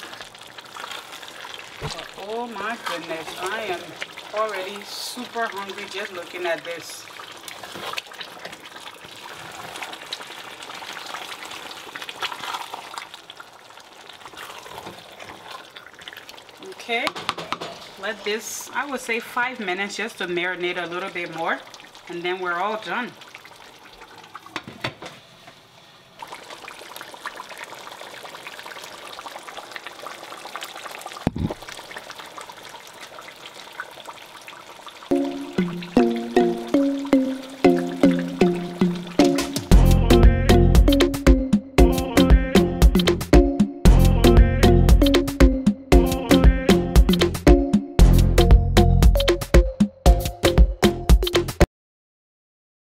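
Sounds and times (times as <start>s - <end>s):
pot sizzling: 0.0s - 51.6s
music: 35.1s - 51.7s.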